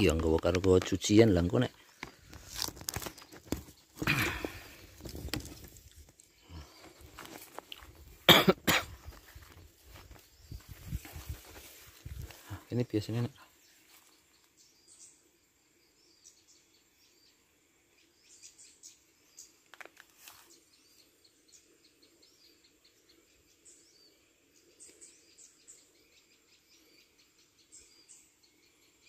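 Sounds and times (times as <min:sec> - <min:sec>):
small birds chirping: 0:00.0 - 0:29.0.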